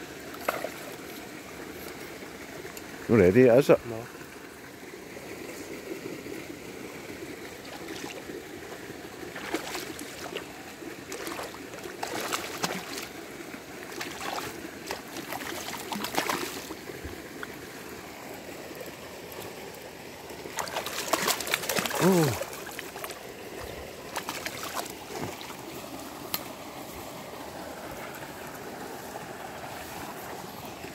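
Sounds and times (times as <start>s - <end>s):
steady watery hiss: 0.0s - 30.9s
fish splashing at water surface: 7.6s - 8.4s, 9.2s - 16.9s, 20.5s - 23.3s, 24.1s - 25.7s.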